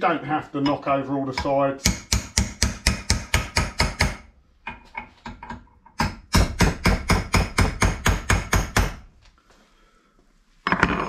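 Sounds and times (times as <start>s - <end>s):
hammer striking chisel: 1.4s - 9.1s.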